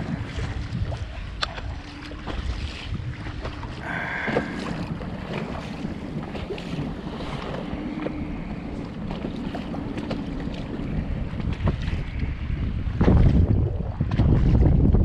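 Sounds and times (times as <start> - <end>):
choppy sea water: 0.0 - 15.0
low steady hum: 0.0 - 15.0
wind buffeting microphone: 0.0 - 15.0.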